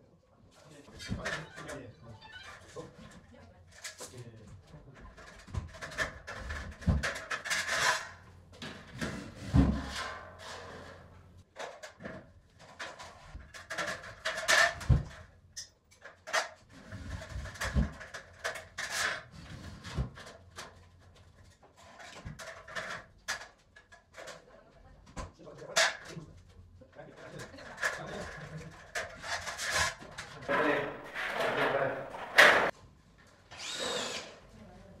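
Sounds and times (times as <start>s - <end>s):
metal scraping and rubbing: 29.0s - 32.7s.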